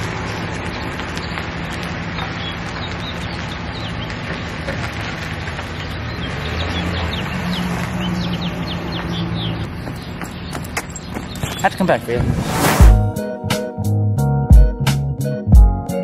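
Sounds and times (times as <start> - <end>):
small birds chirping: 0.0 - 4.9, 5.6 - 12.2
truck engine driving off: 0.0 - 11.4.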